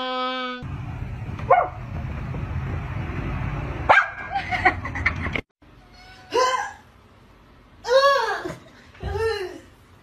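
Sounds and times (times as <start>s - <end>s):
dog barking sharply: 3.9s - 4.3s.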